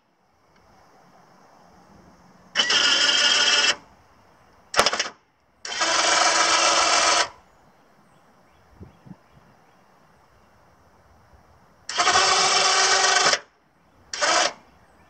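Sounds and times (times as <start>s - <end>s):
electric winch running: 2.6s - 3.8s, 4.8s - 7.4s, 11.9s - 13.5s, 14.1s - 14.6s.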